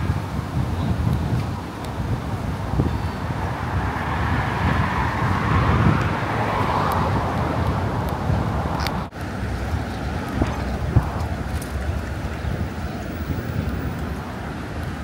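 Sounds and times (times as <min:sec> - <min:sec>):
street traffic: 0:00.0 - 0:15.0
wind buffeting microphone: 0:00.0 - 0:15.0
car tyres passing: 0:02.7 - 0:15.0.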